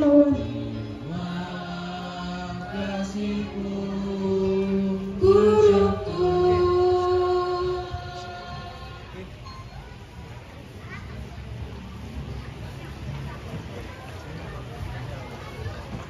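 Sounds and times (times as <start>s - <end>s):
high voice singing a note: 0.0s - 9.1s.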